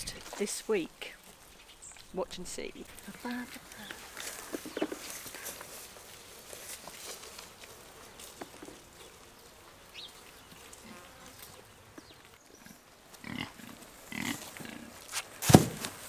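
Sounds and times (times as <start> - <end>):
pigs grunting: 12.6 - 15.0.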